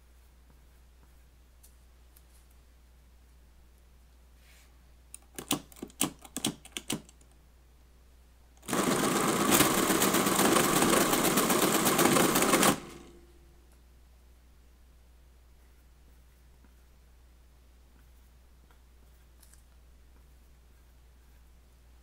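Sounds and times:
mechanical calculator clatter: 0:08.6 - 0:13.1.

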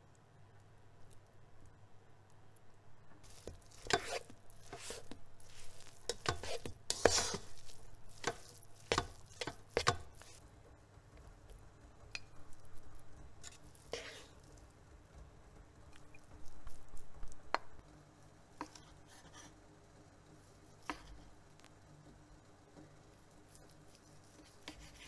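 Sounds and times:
rice paddle scraping pot: 0:03.2 - 0:10.4, 0:13.4 - 0:14.6
rice squishing: 0:03.2 - 0:10.4, 0:12.0 - 0:14.7, 0:23.2 - 0:25.0.

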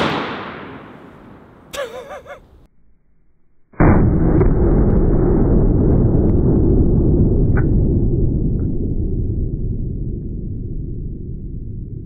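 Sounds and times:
slowed-down revolver boom: 0:00.0 - 0:01.6, 0:03.8 - 0:12.0
person laughing: 0:01.7 - 0:02.6.

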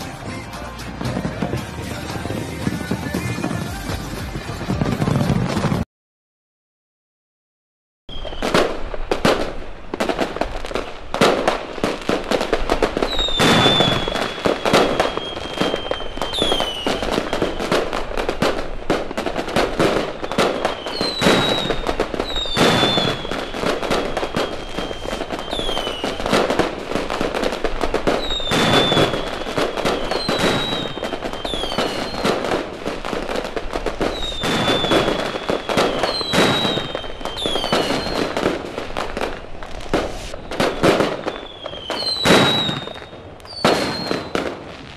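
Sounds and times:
fireworks bangs and crackling: 0:00.0 - 0:05.8, 0:08.1 - 0:44.9
fireworks whistles sliding down: 0:08.1 - 0:08.8, 0:13.0 - 0:18.0, 0:18.9 - 0:26.6, 0:28.1 - 0:32.6, 0:34.0 - 0:38.5, 0:39.7 - 0:44.9.

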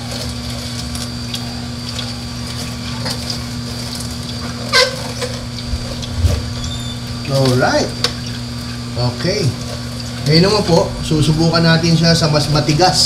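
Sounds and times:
juicer motor hum: 0:00.0 - 0:13.0
greens crackling: 0:00.2 - 0:10.2.

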